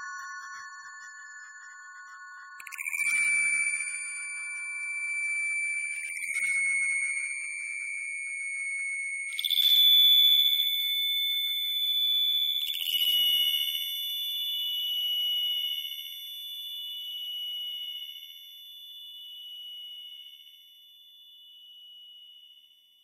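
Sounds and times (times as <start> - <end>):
high bell-like ringing tones: 0.0 - 14.1.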